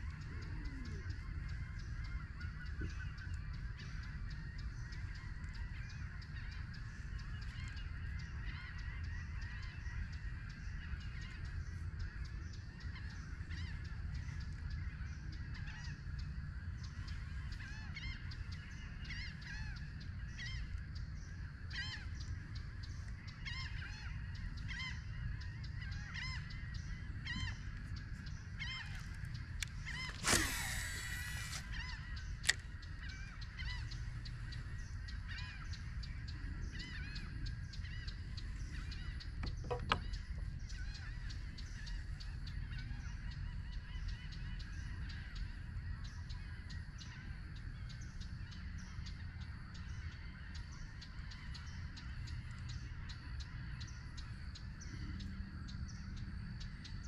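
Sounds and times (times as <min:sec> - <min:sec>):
birds calling: 0:00.0 - 0:57.0
sharp click: 0:29.6 - 0:32.7.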